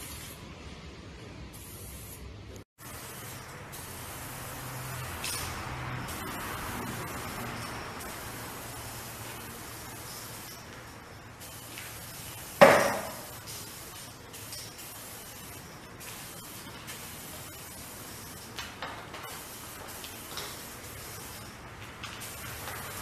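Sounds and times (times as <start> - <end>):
spray paint can hissing: 0.0 - 0.4, 1.5 - 23.0.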